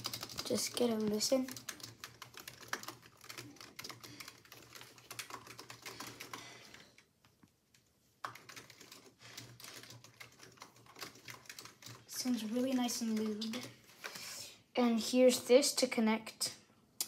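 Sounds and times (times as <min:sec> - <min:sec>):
fast keyboard typing clacks: 0:00.0 - 0:07.1, 0:08.2 - 0:13.8.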